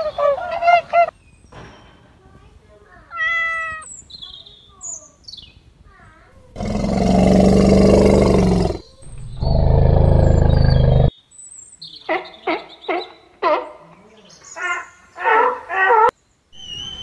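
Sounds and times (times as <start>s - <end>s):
elephants roaring: 6.5s - 11.1s.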